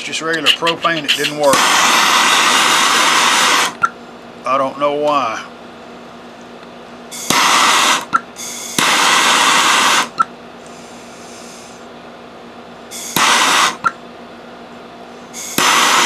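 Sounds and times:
hand torch hissing: 0.4s - 3.8s, 7.2s - 10.1s, 12.9s - 13.9s, 15.4s - 16.0s.

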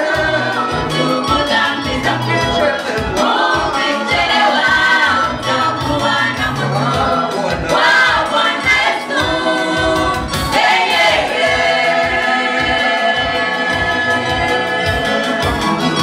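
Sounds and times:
man singing lead: 0.0s - 4.7s
choir singing: 0.0s - 16.0s.

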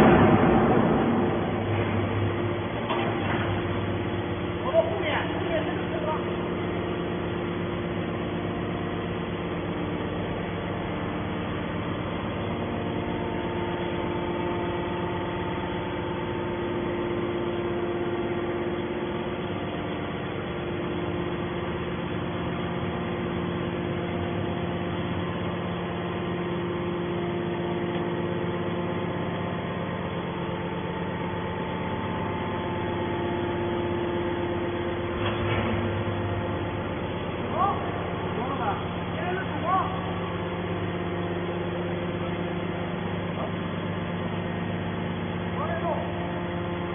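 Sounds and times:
hydraulic baler motor humming: 0.0s - 46.9s.

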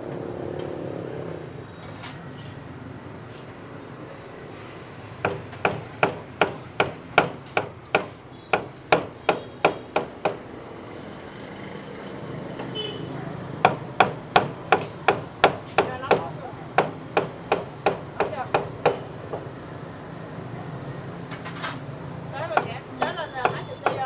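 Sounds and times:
cleaver chopping meat on wood: 5.3s - 10.4s, 13.6s - 19.5s, 22.6s - 24.0s.

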